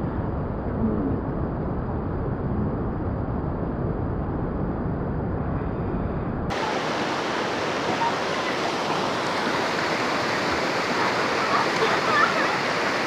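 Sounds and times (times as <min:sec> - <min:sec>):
river water flowing: 0:06.5 - 0:13.0.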